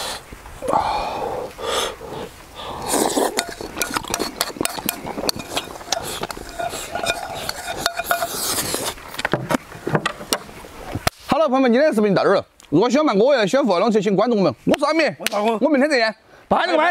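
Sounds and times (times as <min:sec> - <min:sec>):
noisy eating: 0:00.0 - 0:09.9
chopsticks clinking on bowls: 0:03.1 - 0:08.9.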